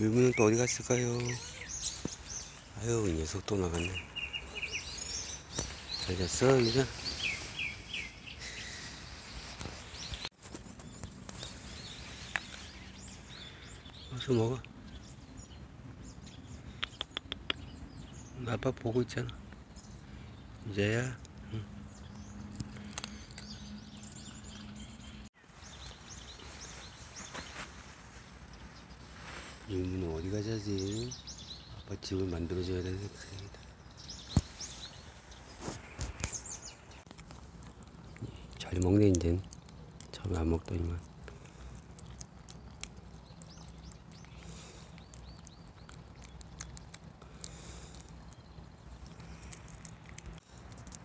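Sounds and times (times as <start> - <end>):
small birds chirping: 0.0 - 51.0
cat crunching dry kibble: 37.1 - 51.0.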